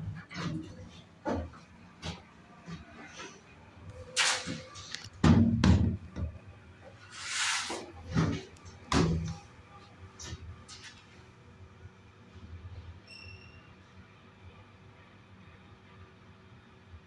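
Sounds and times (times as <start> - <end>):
knocks and thumps in elevator: 5.2 - 6.5, 8.0 - 9.5
short rushing hiss: 7.1 - 7.9.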